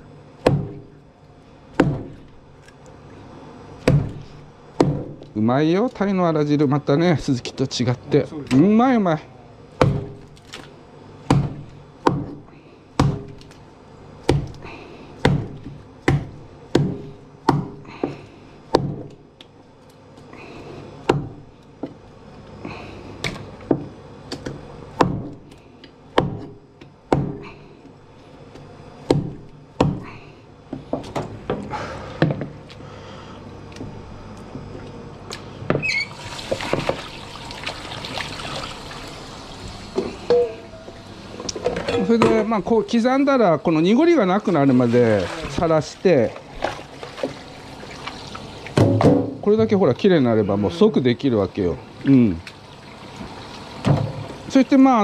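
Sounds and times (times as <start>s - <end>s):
knife chopping on cutting board: 15.2s - 19.1s
tap running water: 35.9s - 40.1s, 44.4s - 49.1s, 51.9s - 54.7s.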